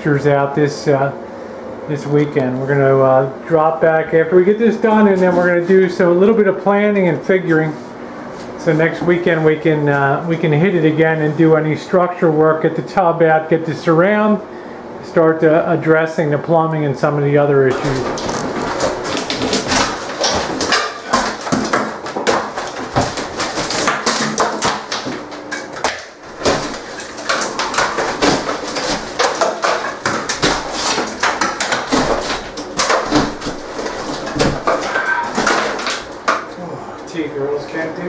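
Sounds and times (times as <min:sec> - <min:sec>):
drywall tearing and cracking: 0:17.7 - 0:36.5.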